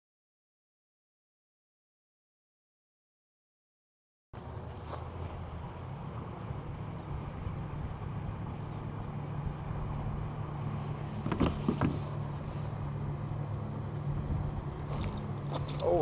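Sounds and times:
boat motor humming: 4.4 - 16.0.

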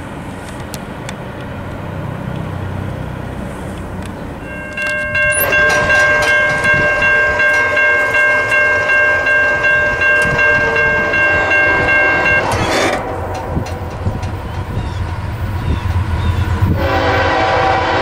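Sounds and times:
locomotive air horn blast: 5.0 - 13.9, 16.6 - 18.0.

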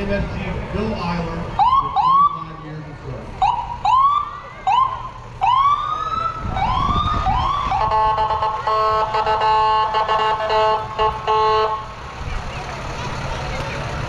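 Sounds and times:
low engine rumble: 0.0 - 14.0
ambulance siren whoops: 1.6 - 2.4, 3.4 - 11.8
vehicle horn blasts: 7.8 - 11.9.

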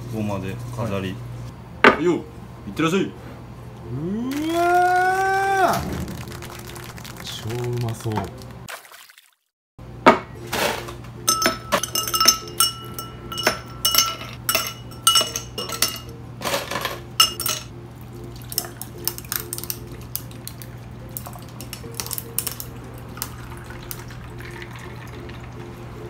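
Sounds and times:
drink pouring over ice: 4.4 - 9.1, 18.2 - 25.8
ice cubes shifting and ticking: 5.9 - 8.7
ice cubes clinking in glass: 11.3 - 17.7.

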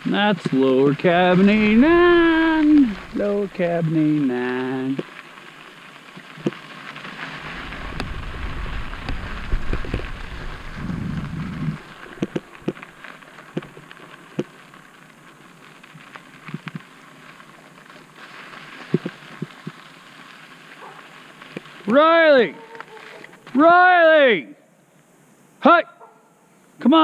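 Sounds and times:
tyres crunching over dirt: 0.0 - 23.7
bike rattling over bumps: 1.0 - 14.6
heavy low rumble: 1.3 - 4.3, 7.3 - 13.0.

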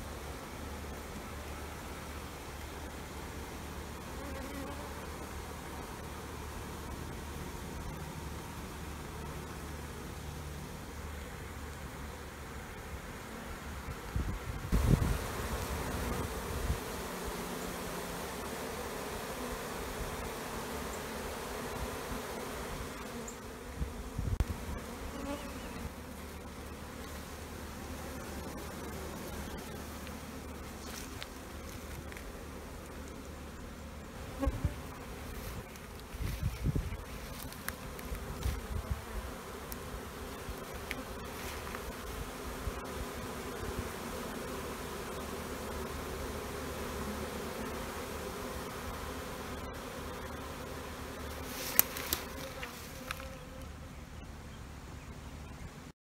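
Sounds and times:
honey bees buzzing: 0.0 - 54.4.

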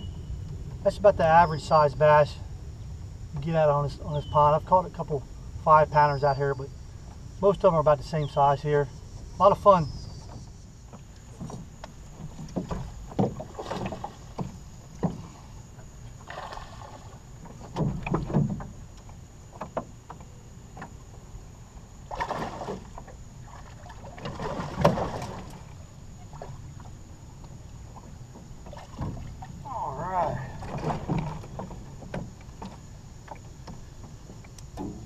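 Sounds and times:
clatter on boat: 8.8 - 35.0.

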